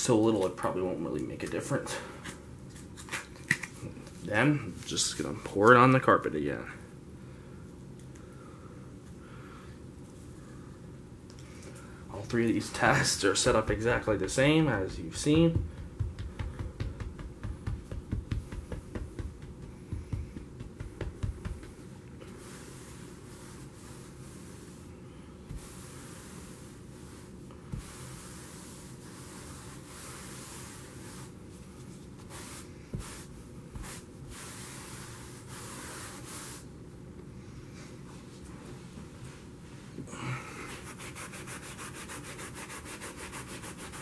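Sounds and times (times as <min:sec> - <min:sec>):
brush tapping on carpet: 0:13.4 - 0:21.9
brush scrubbing carpet: 0:22.3 - 0:24.9, 0:25.5 - 0:31.4, 0:32.2 - 0:36.6, 0:40.8 - 0:44.0.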